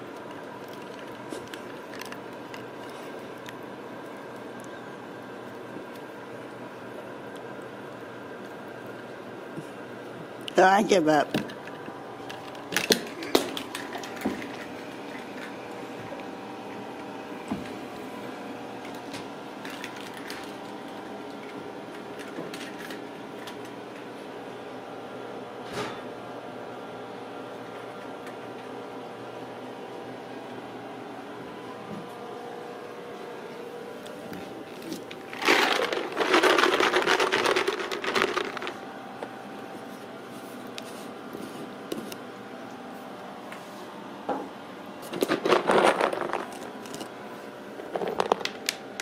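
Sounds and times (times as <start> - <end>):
steady room hum: 0.0 - 49.0
cat treats rattling in jar: 35.3 - 38.8.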